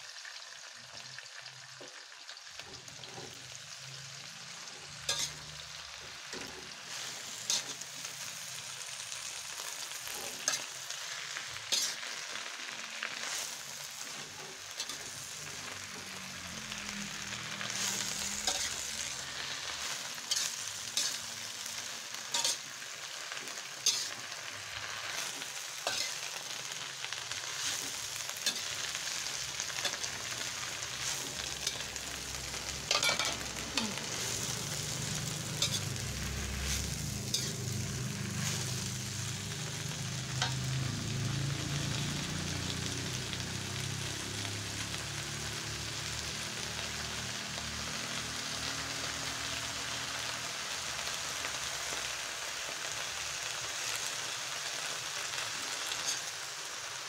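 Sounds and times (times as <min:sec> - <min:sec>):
vegetables sizzling in a wok: 0:00.0 - 0:57.0
spatula scraping a pan: 0:04.8 - 0:05.6, 0:17.6 - 0:21.6, 0:22.3 - 0:22.7, 0:23.3 - 0:24.3, 0:25.1 - 0:26.4, 0:32.6 - 0:39.0.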